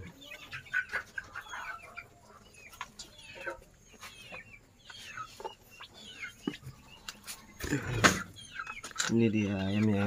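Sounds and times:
chickens clucking: 0:00.0 - 0:10.0
chicks peeping: 0:00.0 - 0:10.0.

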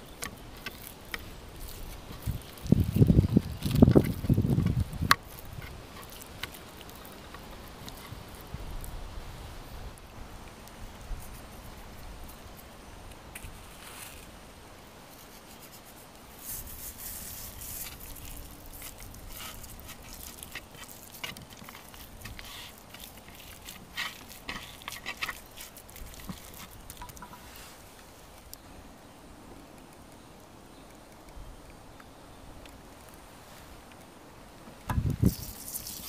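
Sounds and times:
hand patting and scraping meat: 0:00.0 - 0:08.5, 0:16.4 - 0:27.7.

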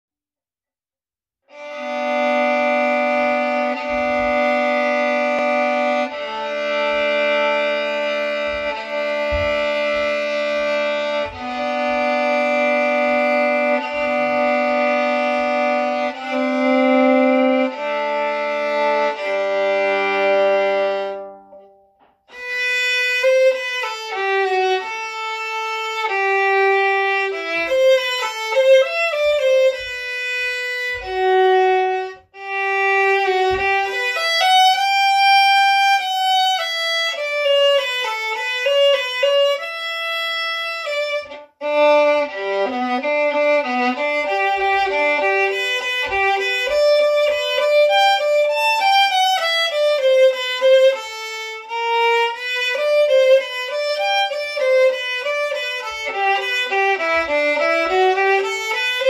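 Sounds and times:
violin music: 0:01.4 - 0:59.0.

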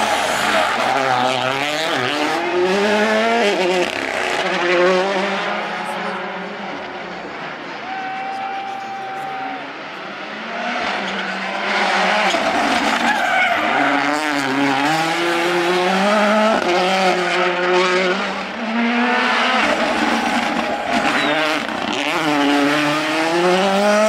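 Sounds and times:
rally car engines revving: 0:00.0 - 0:24.0.

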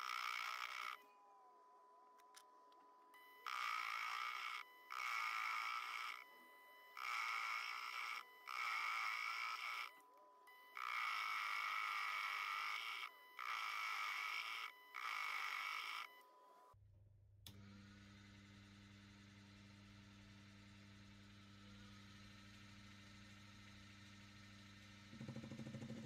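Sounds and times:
faint lathe hum: 0:00.0 - 0:16.8, 0:17.4 - 0:26.0
lathe rasping cut on steel: 0:07.0 - 0:09.9.

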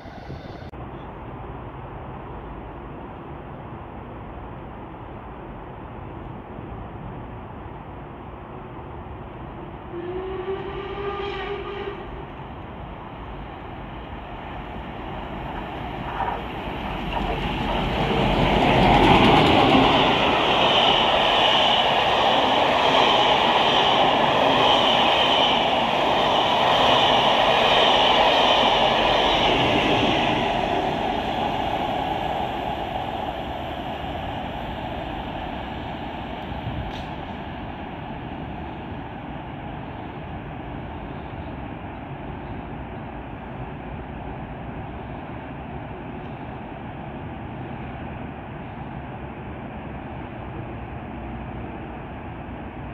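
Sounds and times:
steam locomotive passing: 0:00.0 - 0:01.7, 0:08.4 - 0:52.9
steam train whistle: 0:09.9 - 0:12.2
train wheel clatter: 0:15.4 - 0:21.9.

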